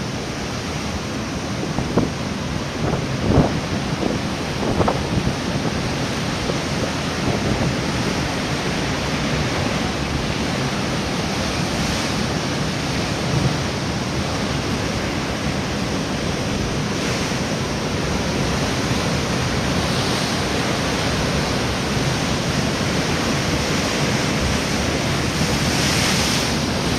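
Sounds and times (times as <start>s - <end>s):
wind buffeting microphone: 1.6s - 13.9s.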